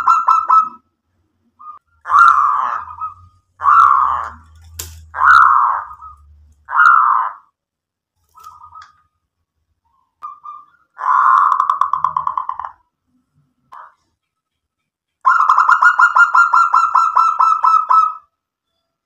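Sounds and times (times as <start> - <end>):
dove cooing: 1.6 - 7.3.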